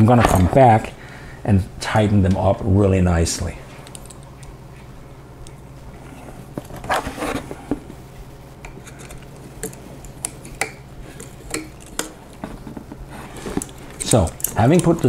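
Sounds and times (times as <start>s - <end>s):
small metal parts clinking: 13.4s - 15.0s.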